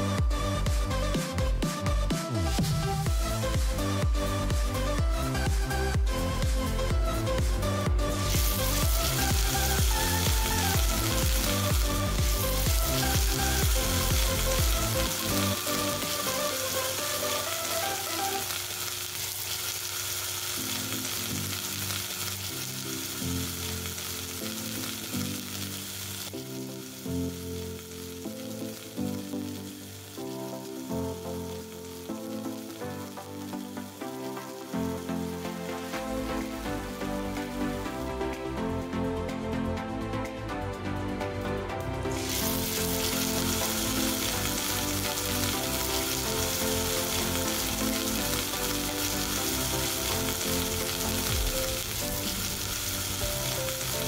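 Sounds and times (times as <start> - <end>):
background music with pulsing beat: 0.0 - 18.8, 26.2 - 54.0
meat sizzling in a pan: 8.1 - 37.6, 42.1 - 54.0.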